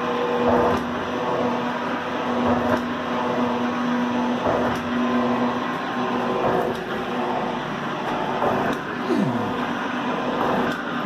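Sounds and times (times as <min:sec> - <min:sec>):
metal shaper motor hum: 0:05.3 - 0:10.9.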